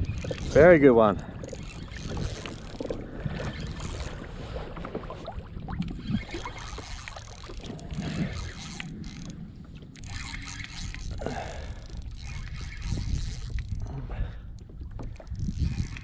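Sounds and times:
waves slapping against kayak hull: 0.0s - 10.6s
wind buffeting microphone: 0.0s - 16.0s.

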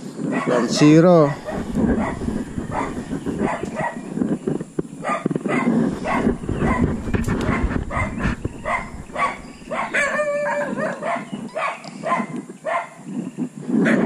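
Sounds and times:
animal yelping calls: 0.4s - 11.3s
low handling rumble: 1.0s - 5.0s, 5.7s - 10.2s.

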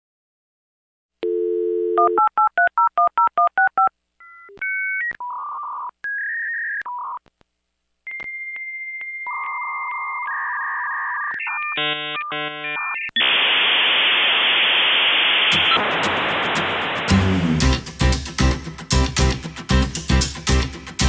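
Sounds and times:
telephone dial tone: 1.2s - 2.4s
modem handshake tones and hiss: 11.4s - 17.2s.

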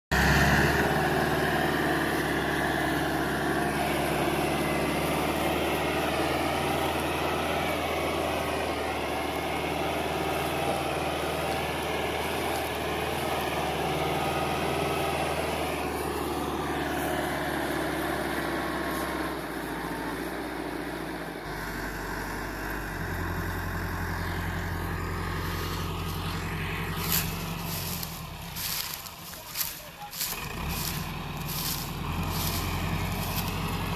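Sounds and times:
tractor engine under heavy load: 0.0s - 33.9s.

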